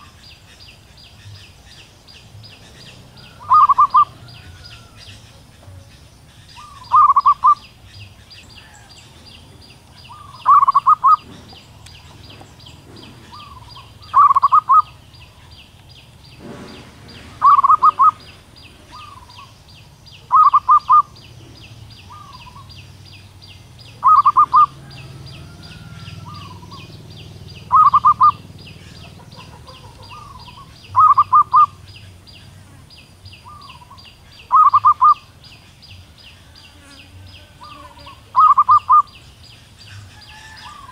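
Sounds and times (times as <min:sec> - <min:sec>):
dove cooing: 0:02.5 - 0:15.5, 0:16.4 - 0:19.6, 0:20.2 - 0:22.8, 0:23.8 - 0:32.1, 0:33.4 - 0:35.3, 0:37.4 - 0:39.2.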